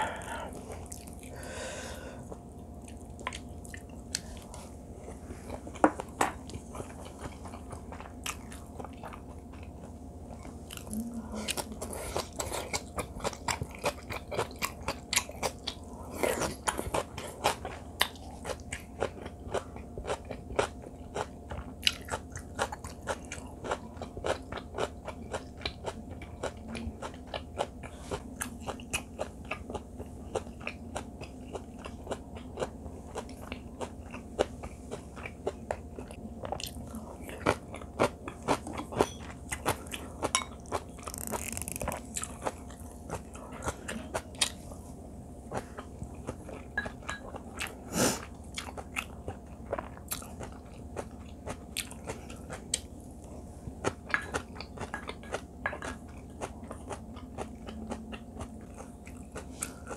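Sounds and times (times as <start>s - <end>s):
person chewing crunchy food: 0.0s - 59.9s.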